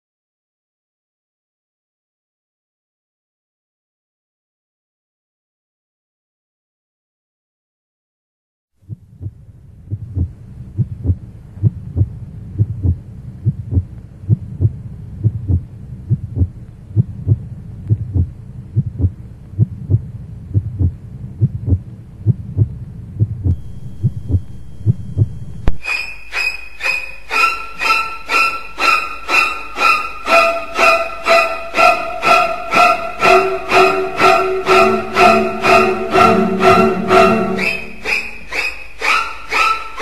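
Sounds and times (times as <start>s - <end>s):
heartbeat thumps: 8.8s - 25.8s
low hum: 8.8s - 25.8s
violin music: 25.6s - 40.0s.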